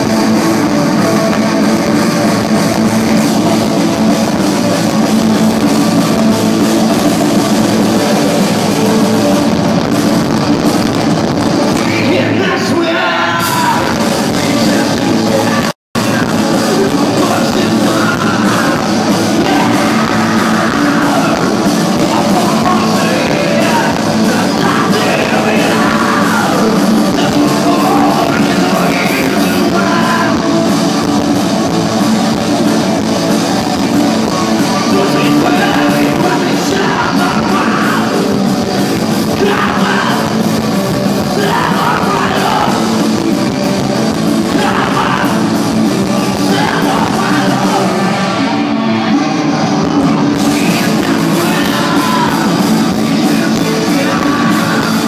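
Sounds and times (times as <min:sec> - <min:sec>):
rock band playing live: 0:00.0 - 0:55.0
person singing: 0:11.6 - 0:55.0.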